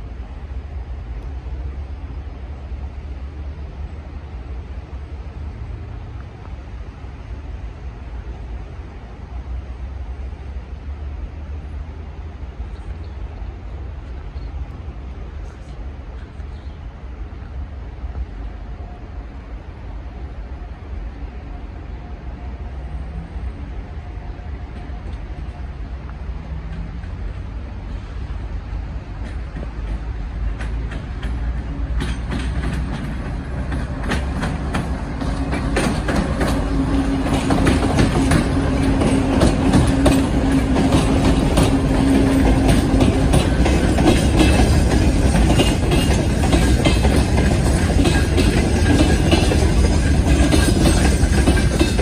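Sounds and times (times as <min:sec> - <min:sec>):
diesel locomotive rumbling: 0:00.0 - 0:52.0
wheels clicking over rail joints: 0:24.6 - 0:52.0.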